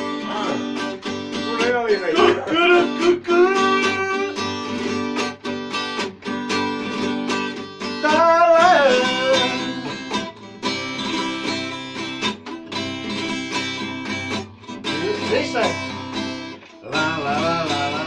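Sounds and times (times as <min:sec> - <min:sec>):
acoustic guitars strumming: 0:00.0 - 0:18.0
person singing: 0:01.4 - 0:04.8, 0:07.8 - 0:10.2, 0:16.7 - 0:18.0.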